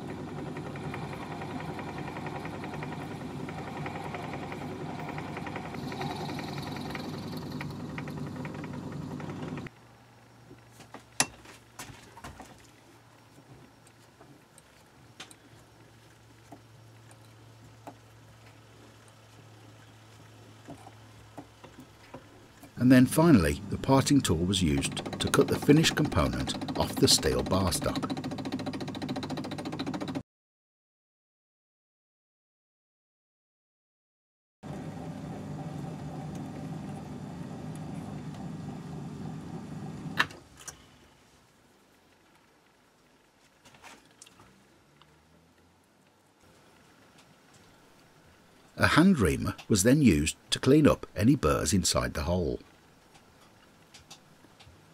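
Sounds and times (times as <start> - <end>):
lathe humming: 0.0 - 9.7, 22.8 - 30.2, 34.7 - 40.2.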